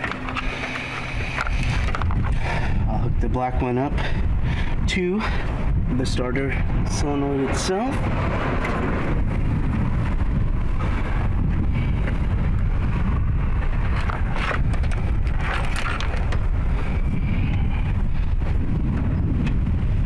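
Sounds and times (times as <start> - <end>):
wind buffeting microphone: 0.0 - 20.0
faint clicks and rustles: 13.9 - 16.5.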